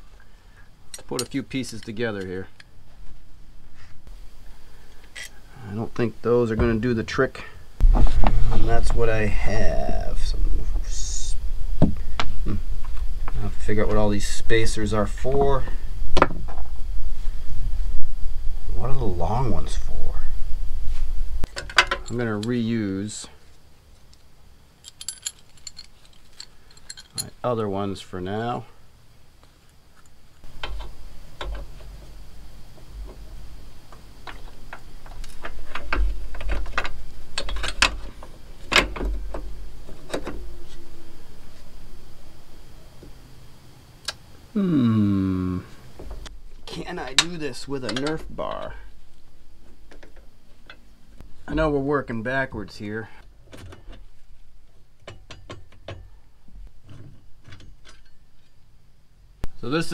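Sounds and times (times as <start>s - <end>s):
metal hardware clicking and knocking: 1.0s - 2.7s, 34.3s - 39.4s, 47.1s - 48.7s, 55.0s - 56.2s
metal tools clinking: 5.0s - 5.4s, 24.8s - 27.4s
low rumble: 7.6s - 21.5s.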